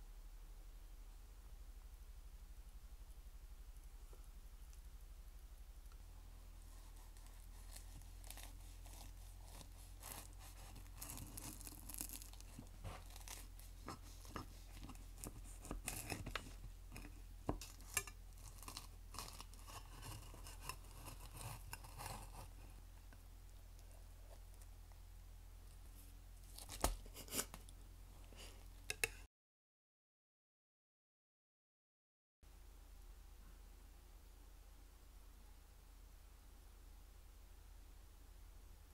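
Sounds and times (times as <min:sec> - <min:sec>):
faint low hum: 0:00.0 - 0:29.2, 0:32.5 - 0:38.9
pastry crust crackling and crunching: 0:05.8 - 0:25.0, 0:25.6 - 0:27.8.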